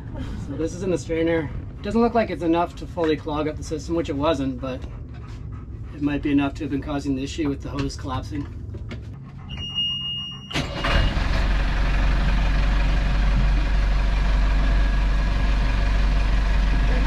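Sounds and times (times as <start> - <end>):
boat engine starting and idling: 10.3 - 17.0.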